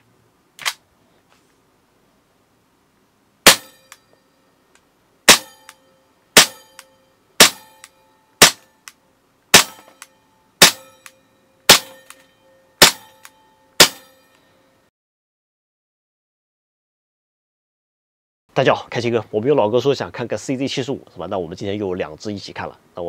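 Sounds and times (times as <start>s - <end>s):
airsoft pistol shots: 3.5s - 4.0s, 5.3s - 5.7s, 6.4s - 6.8s, 7.4s - 8.6s, 9.5s - 10.0s, 10.6s - 11.0s, 11.7s - 12.2s, 12.8s - 13.1s, 13.8s - 14.1s.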